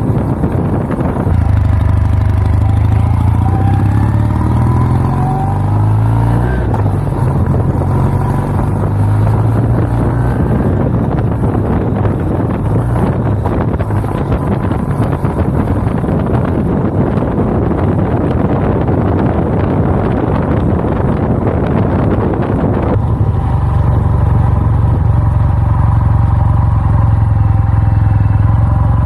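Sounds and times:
motorcycle engine accelerating: 0.0s - 29.0s
wind noise on microphone: 0.0s - 29.0s.

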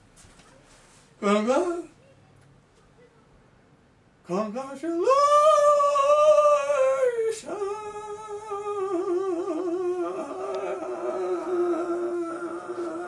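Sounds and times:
man singing opera: 4.3s - 13.0s.

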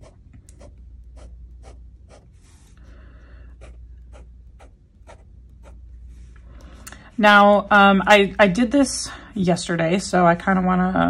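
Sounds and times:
pen nib scratching paper: 0.0s - 2.7s, 3.5s - 5.8s.

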